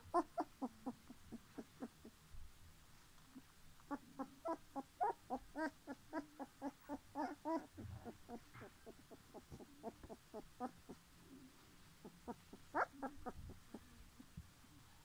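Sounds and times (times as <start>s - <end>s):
puppies squeaking and whimpering: 0.1s - 2.1s, 3.9s - 11.0s, 12.0s - 14.0s.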